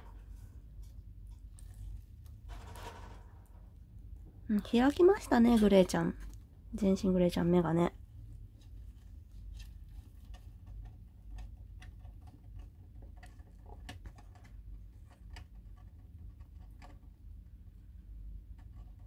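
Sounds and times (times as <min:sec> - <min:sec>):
low steady hum: 0:00.0 - 0:19.0
small claws clicking and scratching: 0:08.5 - 0:17.4, 0:18.3 - 0:19.0.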